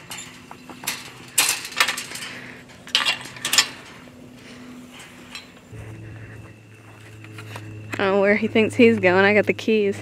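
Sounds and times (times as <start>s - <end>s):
metal gate latch clanking: 0.0s - 4.2s.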